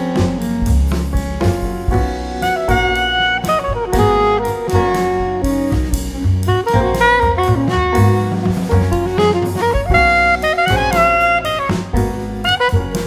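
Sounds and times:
steady drum beat: 0:00.0 - 0:13.0
upbeat instrumental music: 0:00.0 - 0:13.0.

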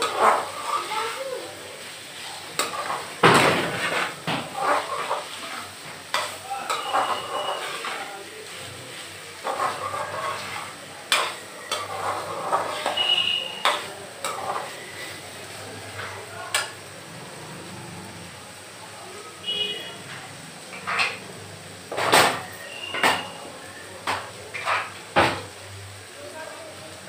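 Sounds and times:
spatula clanking on pan: 0:00.0 - 0:00.9, 0:02.5 - 0:08.0, 0:09.4 - 0:14.9, 0:16.0 - 0:16.8, 0:20.0 - 0:21.2, 0:21.9 - 0:23.4, 0:24.0 - 0:25.6
spatula scraping in pan: 0:00.0 - 0:17.4, 0:19.4 - 0:25.6
food frying: 0:00.0 - 0:27.0
high squeaks: 0:06.7 - 0:07.9.

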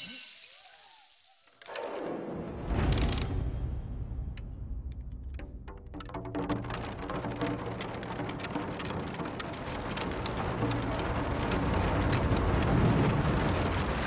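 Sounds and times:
dense patter of small hits: 0:04.8 - 0:14.0.

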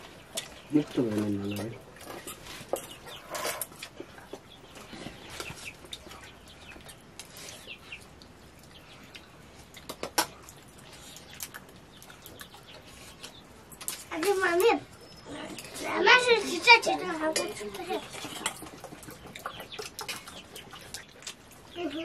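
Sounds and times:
spoon clinking against steel bowls: 0:17.0 - 0:18.7.

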